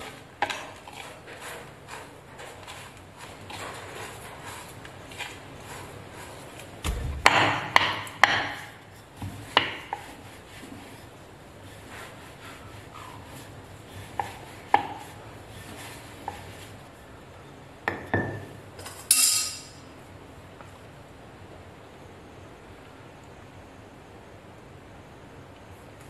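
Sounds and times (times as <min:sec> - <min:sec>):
rolling pin rubbing on dough: 0:00.0 - 0:07.0, 0:08.5 - 0:16.9
sharp wooden knocks: 0:06.8 - 0:08.7.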